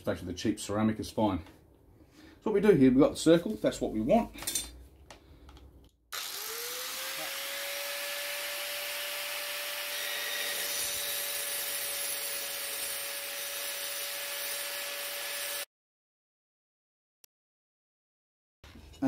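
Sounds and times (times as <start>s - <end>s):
angle grinder cutting tile: 6.1s - 15.7s.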